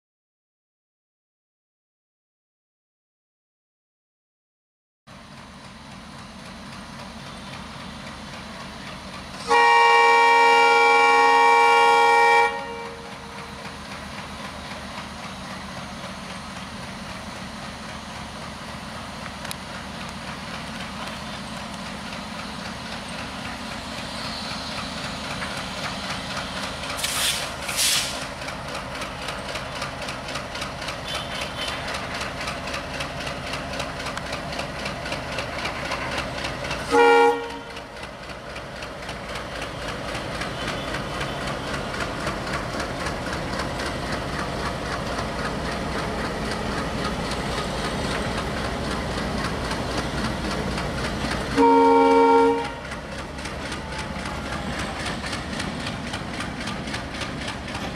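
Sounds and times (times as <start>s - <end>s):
diesel locomotive engine beat: 5.1s - 57.9s
locomotive horn blast: 9.4s - 13.4s, 36.9s - 37.9s, 51.5s - 52.9s.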